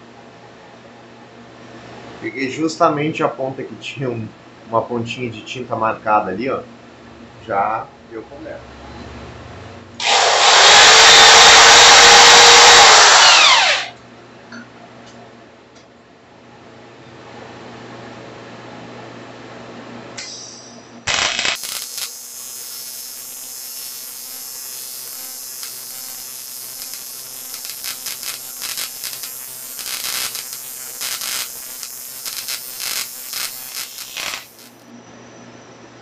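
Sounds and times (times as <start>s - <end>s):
welding arc hissing and crackling: 21.1s - 34.8s.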